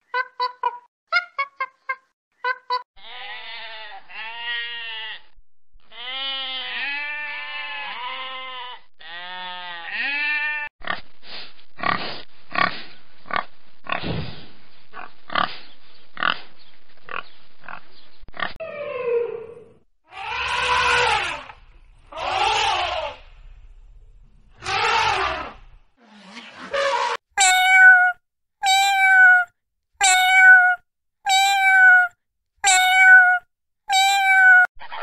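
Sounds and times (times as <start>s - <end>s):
sheep bleating: 3.0s - 10.7s, 20.1s - 21.5s
pigs grunting: 11.8s - 14.2s, 14.9s - 15.6s.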